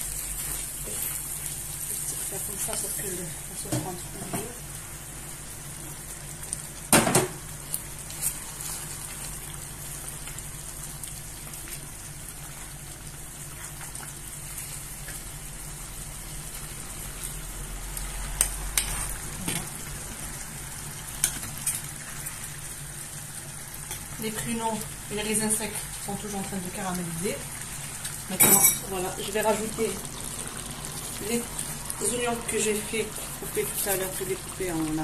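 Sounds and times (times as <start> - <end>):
food sizzling in a dish: 0.0 - 35.0
sugar syrup bubbling: 28.9 - 35.0.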